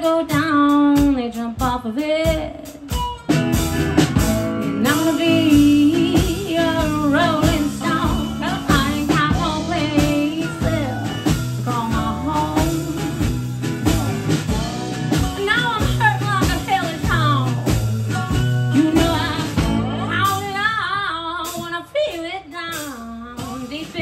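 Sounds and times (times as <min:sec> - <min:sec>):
drum kit beat: 0:00.0 - 0:24.0
strummed acoustic guitar: 0:02.9 - 0:21.7
lap steel guitar melody: 0:03.1 - 0:21.0.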